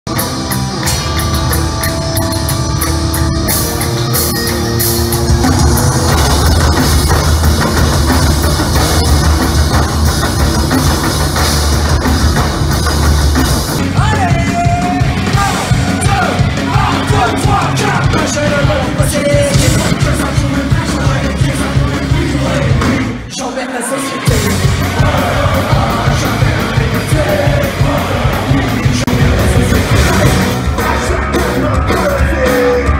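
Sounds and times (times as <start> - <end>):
electric guitar: 0.1 - 23.0
drummers beating metal barrels: 0.1 - 23.1, 24.3 - 32.1
man singing punk rock song: 13.8 - 32.9.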